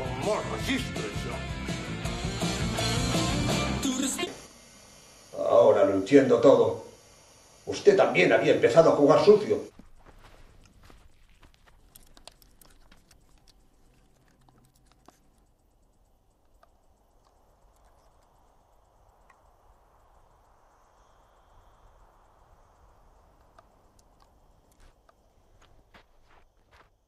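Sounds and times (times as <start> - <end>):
faint hiss: 3.2 - 11.7, 15.2 - 26.0
small clicks: 11.4 - 19.6, 23.2 - 25.3.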